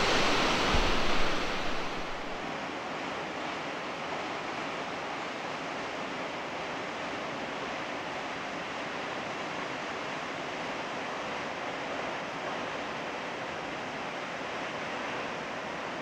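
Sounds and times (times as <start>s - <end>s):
waterfall rushing: 0.0s - 2.5s.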